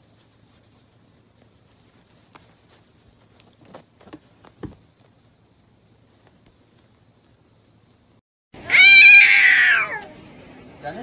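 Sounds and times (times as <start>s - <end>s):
kitten scuffling on blanket: 0.0s - 4.8s
soft taps and thumps: 2.2s - 5.2s.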